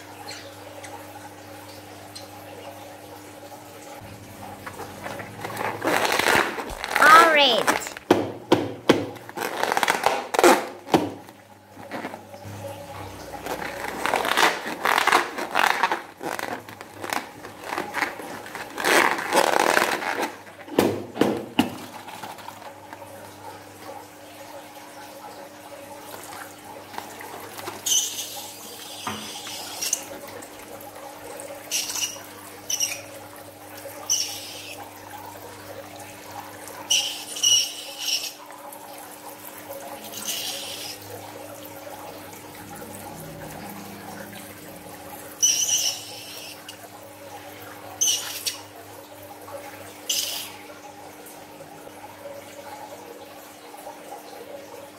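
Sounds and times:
hissing squirts from balloon: 27.7 - 30.1, 31.7 - 33.1, 34.1 - 34.8, 36.9 - 38.5, 40.0 - 41.1, 45.4 - 46.8, 48.0 - 48.7, 50.1 - 50.6.

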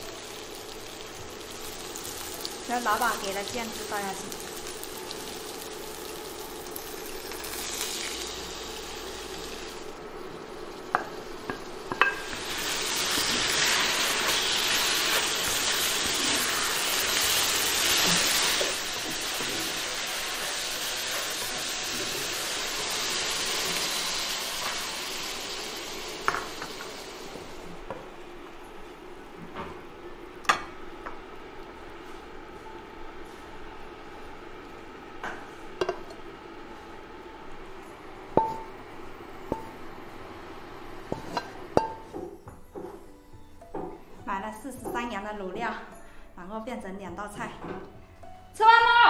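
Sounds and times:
food sizzling in a wok: 0.0 - 27.8, 33.0 - 42.2.

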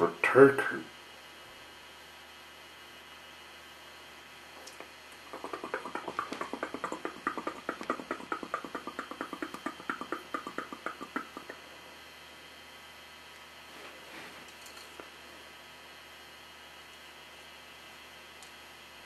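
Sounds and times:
fast rhythm of short beats: 5.2 - 11.6.

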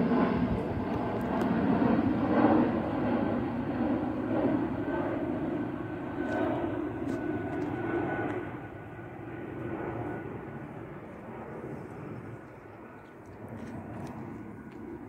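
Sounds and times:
airliner engine flying overhead: 0.0 - 15.0.

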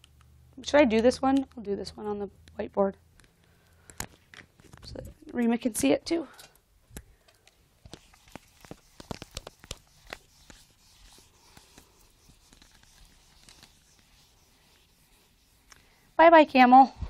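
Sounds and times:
eraser scrubbing a whiteboard: 7.9 - 16.6.

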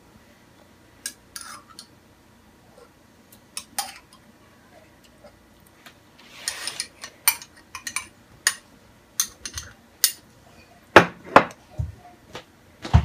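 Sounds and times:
rustling scrape: 6.2 - 7.0.

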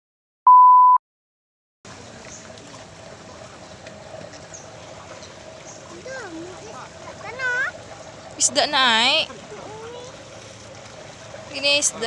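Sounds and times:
electronic beep: 0.5 - 1.0
water sloshing in a pond: 1.9 - 12.0.

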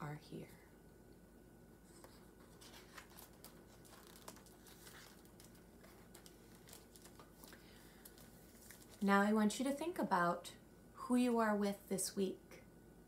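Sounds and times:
book paper rustling: 1.9 - 9.1.

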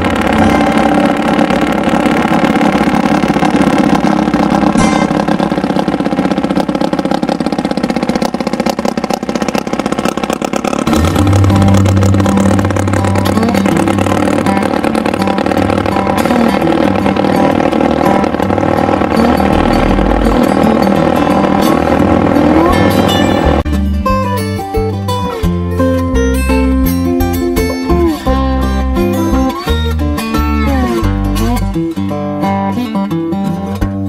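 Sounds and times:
motorboat engines droning: 0.0 - 23.7.

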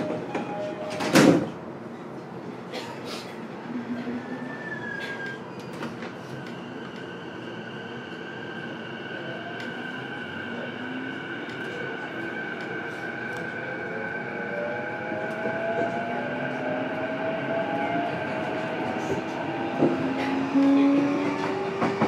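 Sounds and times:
wheels rumbling on rail: 14.6 - 22.0.

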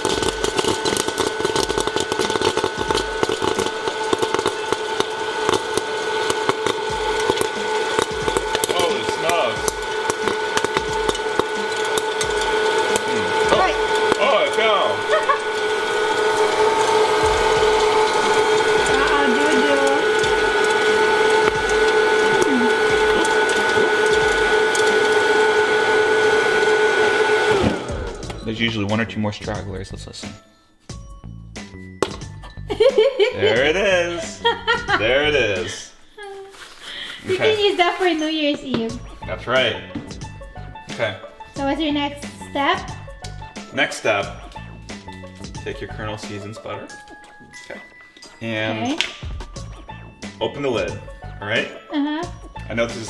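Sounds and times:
fan motor hum: 0.0 - 28.7
popcorn kernels popping: 0.0 - 29.6, 31.8 - 32.8, 37.4 - 51.2.

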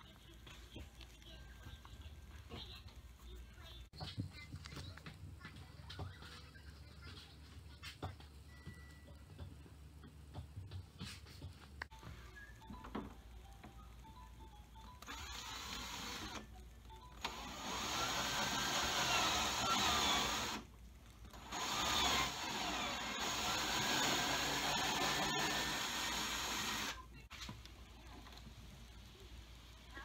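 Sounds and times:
cordless drill boring plastic: 15.0 - 16.5, 17.2 - 20.7, 21.3 - 27.0.

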